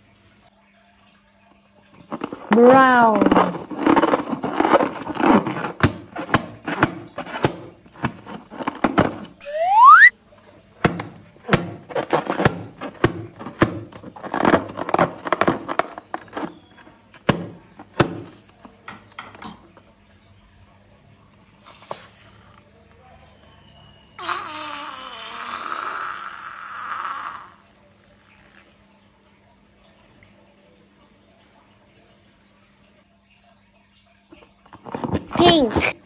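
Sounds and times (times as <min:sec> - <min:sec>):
rising whistle-like squeal: 0:09.4 - 0:10.1.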